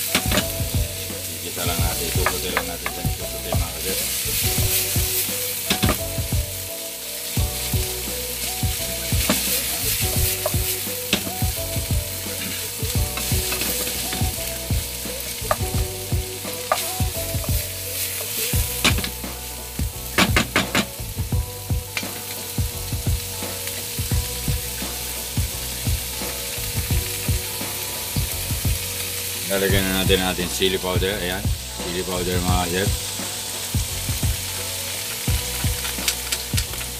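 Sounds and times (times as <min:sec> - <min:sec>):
shrimp and pork sizzling in a pan: 0:00.0 - 0:36.9
wooden spoon knocking against pan: 0:15.5 - 0:15.9.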